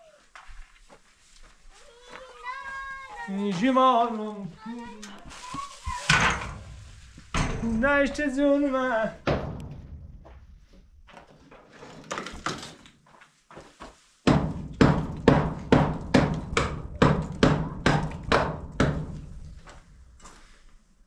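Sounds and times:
hammer striking concrete block: 14.3s - 19.2s.

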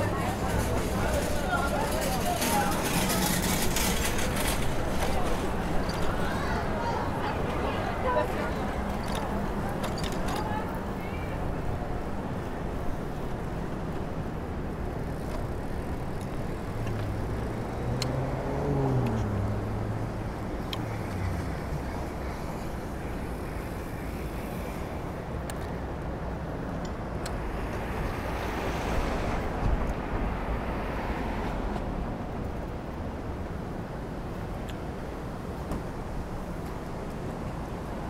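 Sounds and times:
road noise rushing: 0.0s - 38.0s
passing vehicle engine hum: 15.4s - 24.0s.

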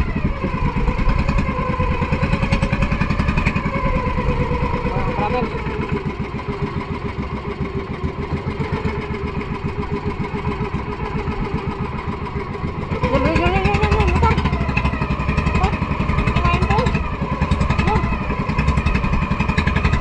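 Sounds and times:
boat engine puttering: 0.0s - 20.0s.

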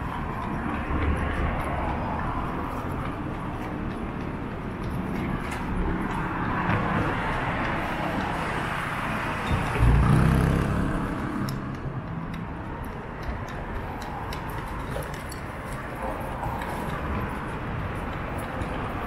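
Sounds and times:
street traffic passing: 0.0s - 19.0s.

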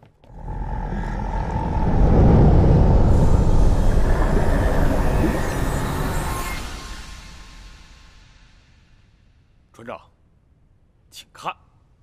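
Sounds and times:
deep underwater rumble: 0.3s - 7.5s.

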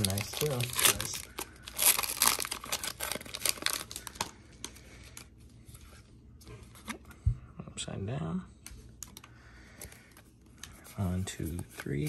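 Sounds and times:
foil wrapper crinkling and tearing: 0.0s - 5.3s.

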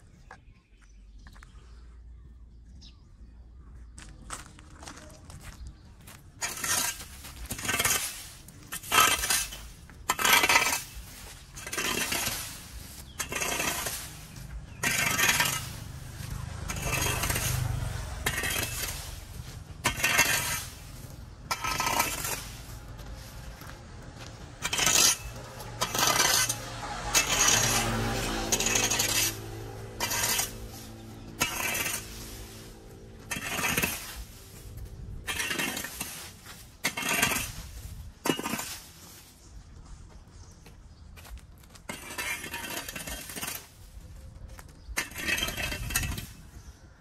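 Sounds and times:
metal rake scraping leaves and concrete: 6.2s - 40.0s, 41.8s - 44.3s, 44.9s - 47.0s.

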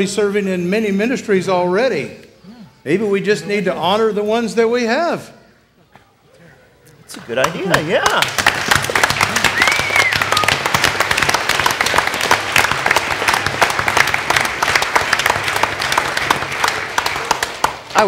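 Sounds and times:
crowd applauding: 7.3s - 18.0s.

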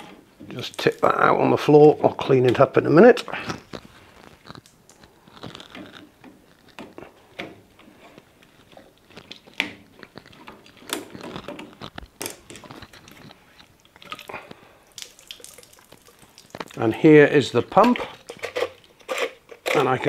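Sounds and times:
plastic clicks and creaks: 2.2s - 14.6s, 17.7s - 20.0s.

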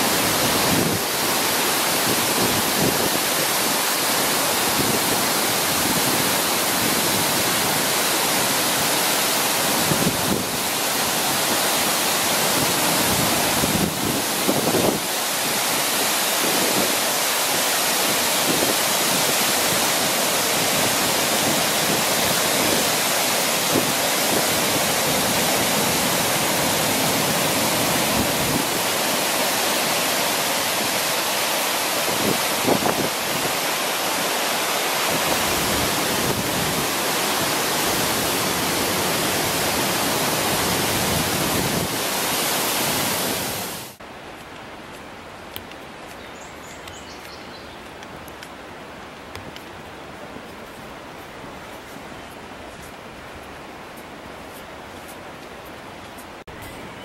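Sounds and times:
waterfall rushing over rocks: 0.0s - 57.0s.

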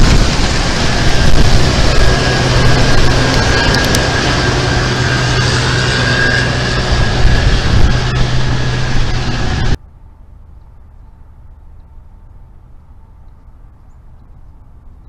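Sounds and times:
combine harvester running: 0.0s - 9.8s
thin high whine: 0.0s - 10.1s
faint outdoor background: 9.8s - 15.0s.

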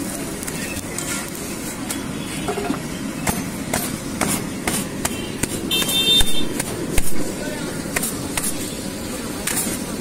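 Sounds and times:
hands slapping flatbread on stone: 3.7s - 7.3s.

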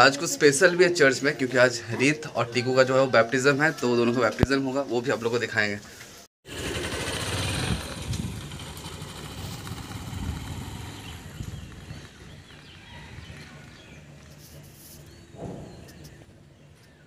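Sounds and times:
motorcycle engine running: 6.5s - 14.9s.

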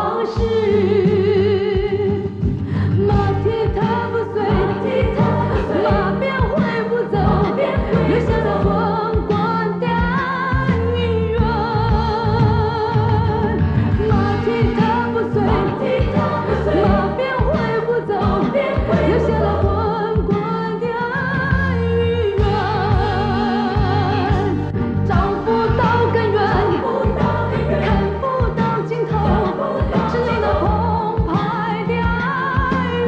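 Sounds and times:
band accompaniment: 0.0s - 33.0s
person singing with vibrato: 0.0s - 33.0s.

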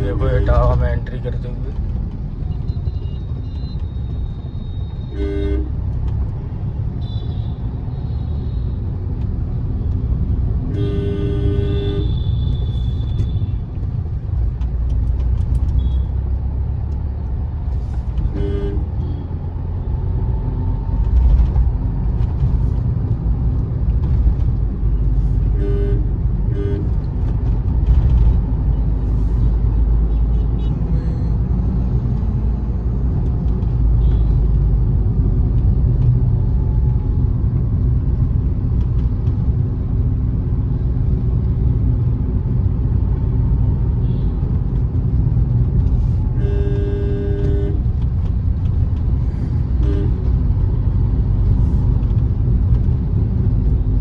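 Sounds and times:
car engine and tyres rumbling: 0.0s - 54.0s
car horn toots: 5.0s - 5.8s, 10.7s - 13.5s, 18.3s - 19.0s, 25.5s - 27.0s, 46.3s - 47.9s, 49.8s - 50.3s.

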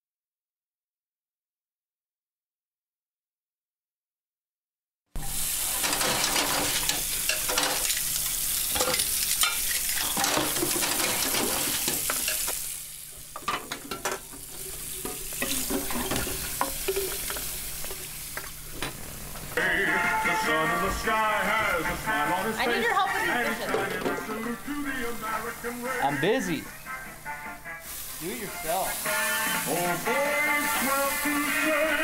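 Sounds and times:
pots and pans clattering: 5.6s - 12.6s, 13.3s - 18.1s, 23.7s - 24.3s
tap water running into sink: 13.4s - 19.0s.

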